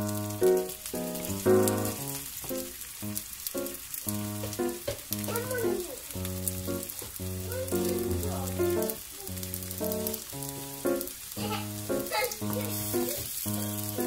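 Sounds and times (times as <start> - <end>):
dumplings sizzling in oil: 0.0 - 14.0
background music with held notes: 6.2 - 14.0.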